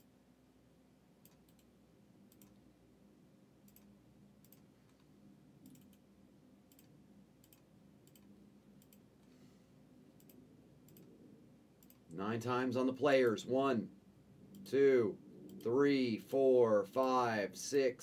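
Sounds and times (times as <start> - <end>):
computer mouse clicks: 1.2 - 1.7, 2.3 - 2.6, 3.6 - 6.0, 6.7 - 9.3, 10.2 - 11.2, 11.8 - 12.2.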